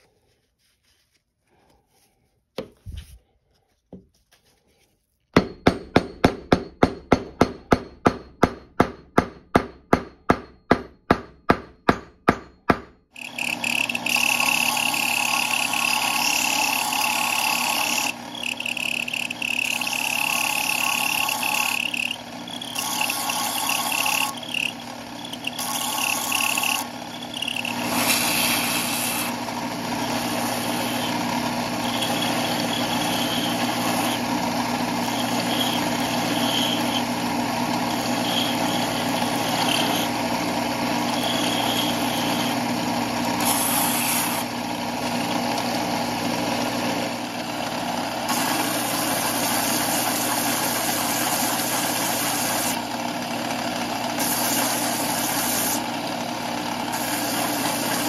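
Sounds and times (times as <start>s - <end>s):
belt sander grinding wood: 13.2s - 58.0s.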